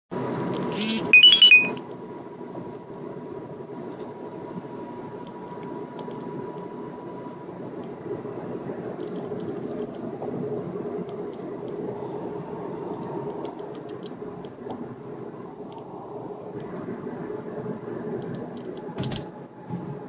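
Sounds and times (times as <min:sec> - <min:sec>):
car road and engine rumble: 0:00.2 - 0:20.0
electronic chirp of high tones: 0:00.8 - 0:01.8.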